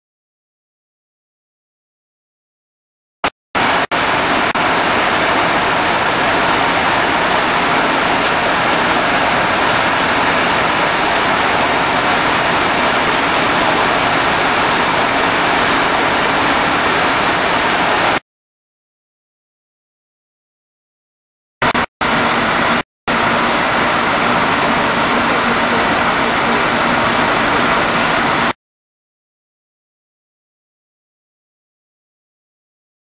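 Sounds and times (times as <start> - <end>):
fire engine rushing drone: 3.6 - 18.2, 21.6 - 28.6.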